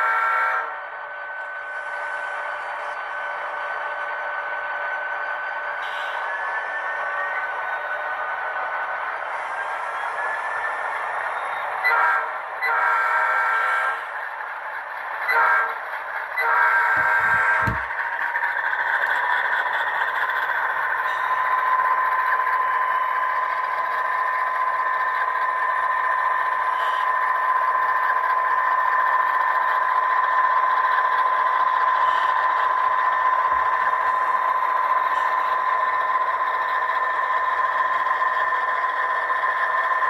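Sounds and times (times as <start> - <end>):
model train whine and rattle: 0.0 - 40.0.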